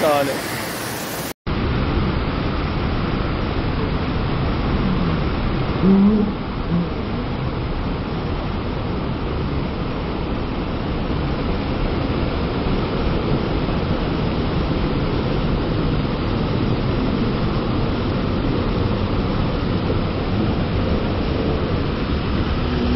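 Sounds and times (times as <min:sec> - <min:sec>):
waterfall and rushing river: 0:00.0 - 0:05.8, 0:06.4 - 0:22.9.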